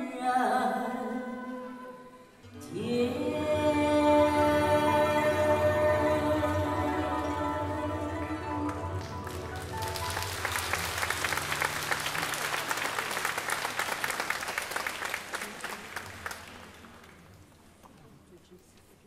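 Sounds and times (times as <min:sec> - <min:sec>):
audience applauding: 0:08.9 - 0:17.5.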